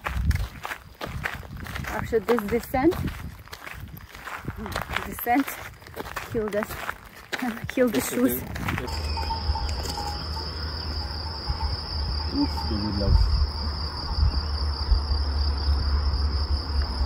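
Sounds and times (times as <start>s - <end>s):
insects trilling: 7.5s - 17.0s.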